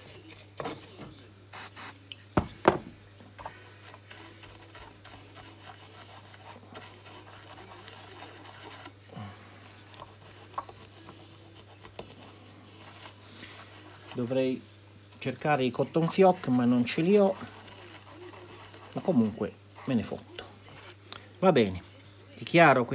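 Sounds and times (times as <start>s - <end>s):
stiff brush scrubbing circuit board: 3.4s - 9.0s, 9.6s - 20.1s.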